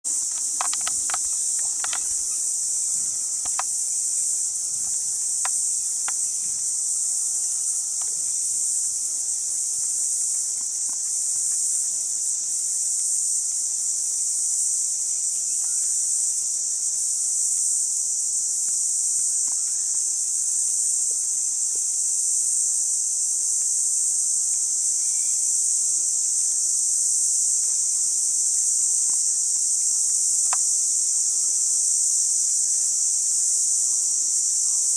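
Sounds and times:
insects trilling: 0:00.0 - 0:34.9
faint clicks: 0:00.1 - 0:03.8, 0:30.4 - 0:30.7.

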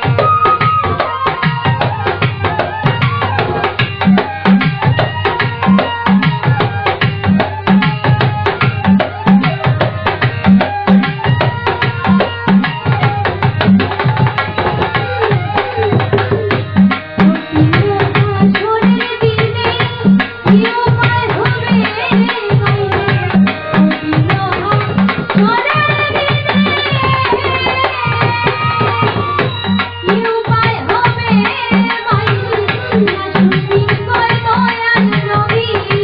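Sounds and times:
held melody notes: 0:00.0 - 0:35.9.

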